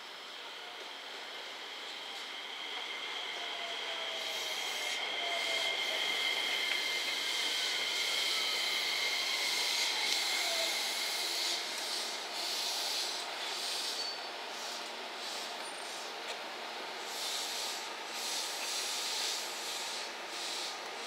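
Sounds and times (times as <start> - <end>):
wheels hissing on rail: 0.0 - 21.0
electric train motor whine: 0.1 - 14.2.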